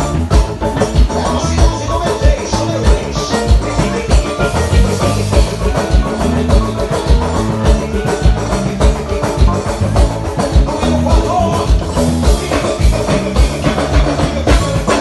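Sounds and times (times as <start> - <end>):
amplified carnival dance music: 0.0 - 15.0
heavy drum beat: 0.0 - 15.0.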